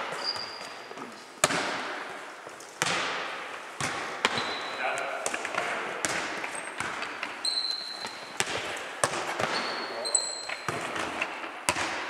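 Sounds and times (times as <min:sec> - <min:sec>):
shoes squeaking on floor: 0:00.0 - 0:01.4, 0:03.5 - 0:11.5
ball bouncing on wooden floor: 0:01.4 - 0:02.1, 0:02.8 - 0:12.0.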